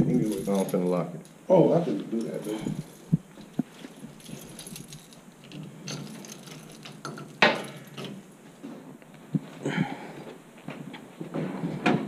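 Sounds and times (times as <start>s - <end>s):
keys jangling at a door: 0.0s - 1.4s, 2.1s - 8.4s.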